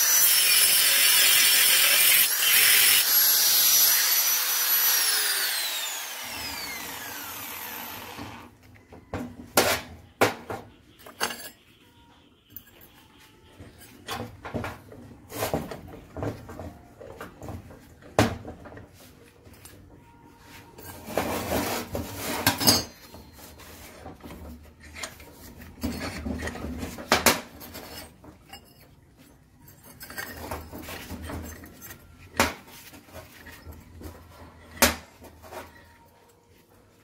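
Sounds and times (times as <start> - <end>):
metal clinks and clanks of vise: 11.0 - 11.7, 22.4 - 23.2, 24.8 - 32.4
metal scraping: 20.3 - 36.2.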